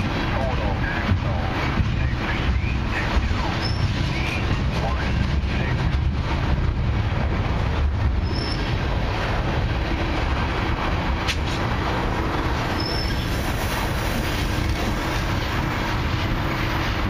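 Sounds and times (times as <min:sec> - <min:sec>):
freight train rolling on rails: 0:00.0 - 0:17.0
high wheel squeal: 0:03.6 - 0:04.0, 0:08.2 - 0:08.8, 0:12.7 - 0:13.6.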